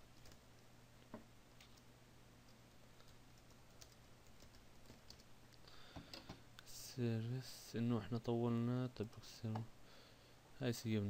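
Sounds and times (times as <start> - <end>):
faint keyboard typing: 0.0 - 6.4
low steady hum: 0.0 - 11.0.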